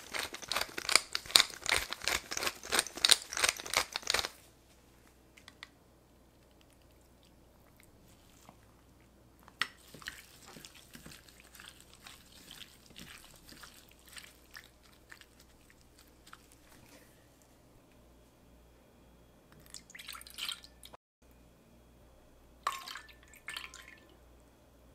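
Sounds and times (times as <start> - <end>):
raw meat squishing: 0.0 - 4.3, 9.4 - 17.0.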